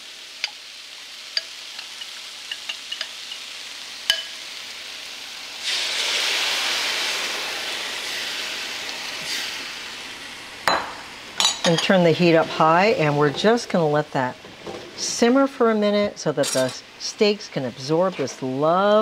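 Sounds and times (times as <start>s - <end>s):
marinade hissing in hot pan: 0.0s - 11.4s, 12.0s - 15.9s
mushrooms sizzling in a pan: 0.0s - 19.0s.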